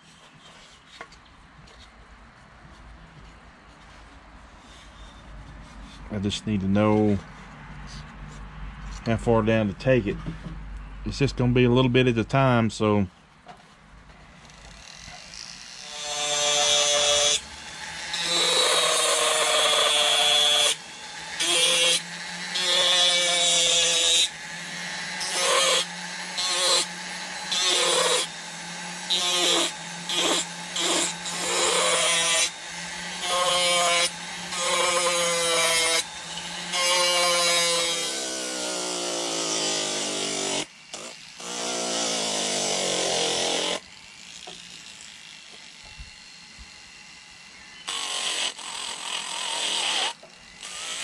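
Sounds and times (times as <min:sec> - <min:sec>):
rotary tool grinding wood: 0:03.6 - 0:09.2, 0:14.2 - 0:51.0.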